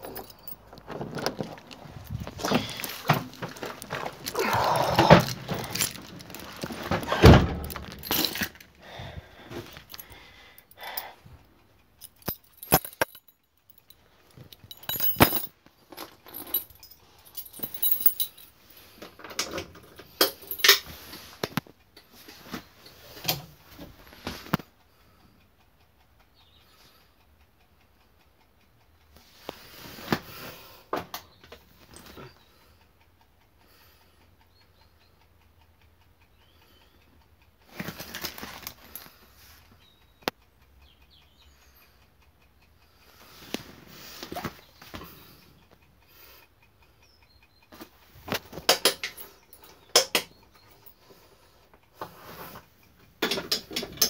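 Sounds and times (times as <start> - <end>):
keys jangling: 0.0 - 8.7, 12.0 - 18.6, 19.4 - 20.9.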